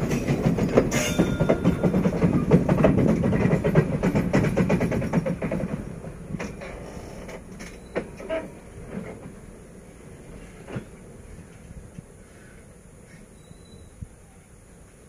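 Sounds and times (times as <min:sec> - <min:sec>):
train wheels clattering: 0:00.0 - 0:12.1
train clanks: 0:00.0 - 0:14.0
short squeak: 0:07.6 - 0:08.5, 0:13.1 - 0:14.0.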